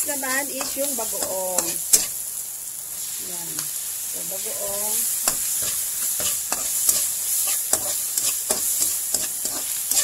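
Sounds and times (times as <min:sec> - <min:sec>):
food sizzling in hot oil: 0:00.0 - 0:10.0
spatula scraping and tapping pan: 0:00.6 - 0:02.2, 0:05.2 - 0:10.0.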